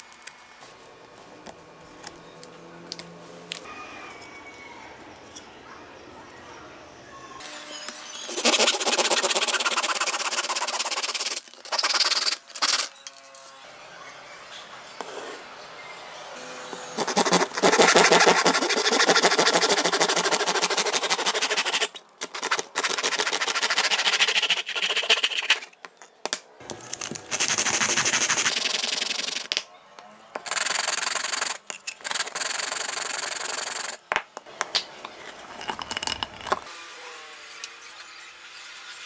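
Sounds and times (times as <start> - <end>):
plastic tube rubbed on sandpaper: 8.3 - 12.8, 17.0 - 25.7
hand saw cutting plastic pipe: 17.0 - 25.6.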